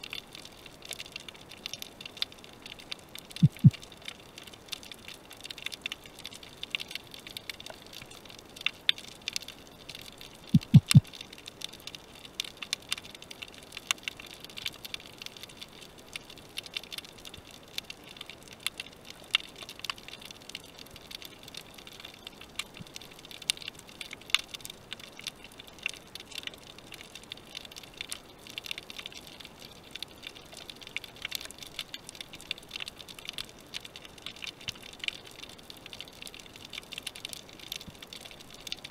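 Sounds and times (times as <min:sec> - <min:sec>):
underwater crackle of tiny clicks: 0:00.0 - 0:38.9
short low thumps: 0:03.4 - 0:03.7, 0:10.6 - 0:11.0.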